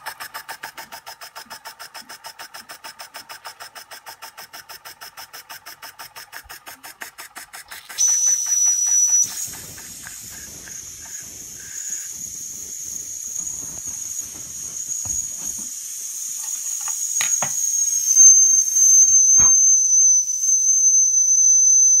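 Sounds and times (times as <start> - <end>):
toy steam engine chuffing: 0.0 - 19.6
steam hissing shrilly: 7.7 - 22.0.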